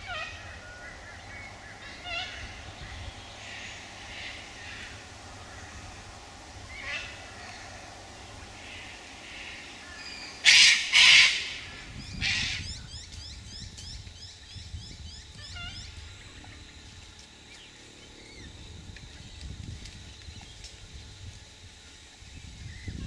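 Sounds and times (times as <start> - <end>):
cockatoos screeching: 8.6 - 12.6.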